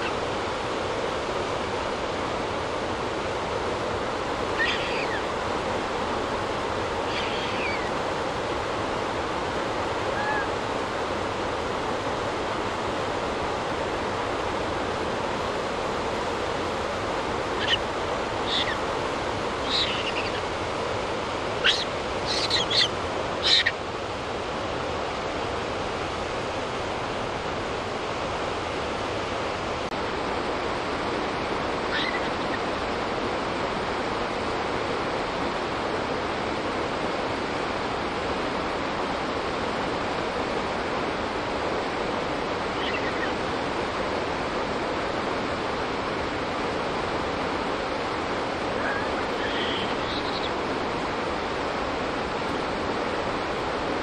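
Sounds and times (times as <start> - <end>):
short high-pitched calls: 21.6 - 23.7.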